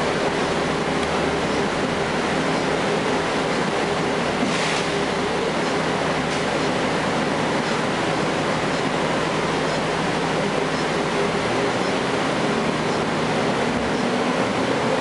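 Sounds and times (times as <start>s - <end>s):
bus diesel engine running: 0.0s - 15.0s
road noise: 0.0s - 15.0s.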